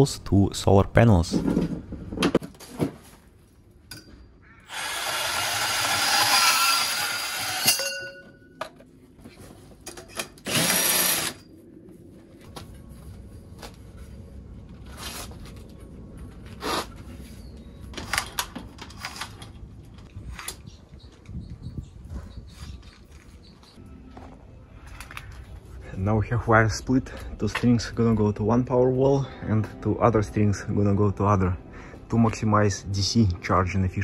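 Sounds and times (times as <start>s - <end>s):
cordless drill running: 4.7s - 7.7s, 10.5s - 11.4s
band saw cutting metal: 4.7s - 7.9s.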